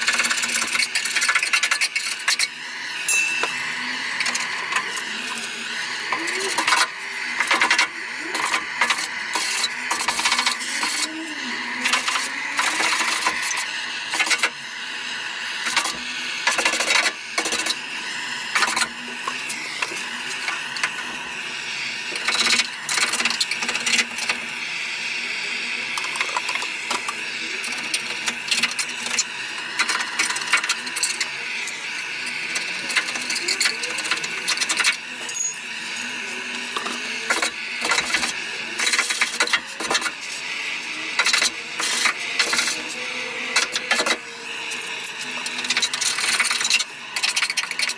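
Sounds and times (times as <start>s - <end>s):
blowtorch hissing: 0.0s - 47.9s.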